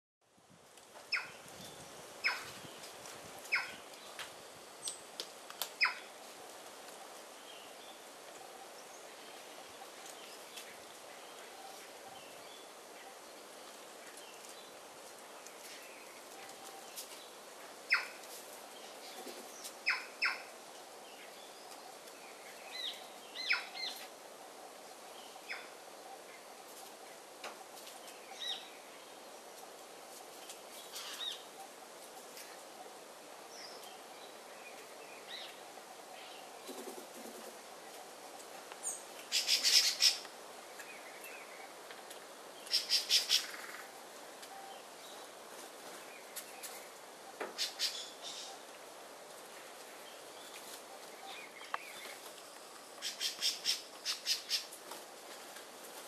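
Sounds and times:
birds giving sharp calls: 0:39.3 - 0:40.2, 0:42.6 - 0:43.9, 0:53.0 - 0:54.7.

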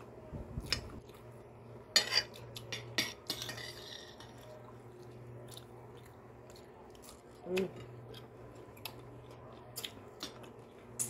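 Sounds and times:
metal spoon scraping glass plate: 0:02.0 - 0:04.5.

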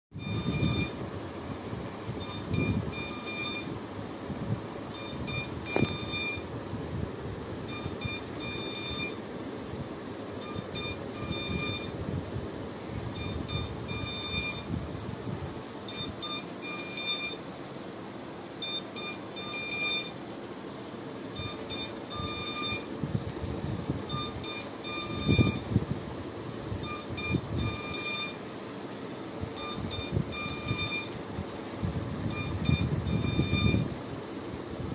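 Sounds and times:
electronic beeper beeping: 0:00.2 - 0:01.0, 0:02.2 - 0:03.8, 0:04.9 - 0:06.5, 0:07.7 - 0:09.2, 0:10.4 - 0:11.9, 0:13.2 - 0:14.7, 0:15.9 - 0:17.4, 0:18.6 - 0:20.2, 0:21.4 - 0:22.9, 0:24.1 - 0:25.6, 0:26.8 - 0:28.4, 0:29.6 - 0:31.2, 0:32.3 - 0:33.9.

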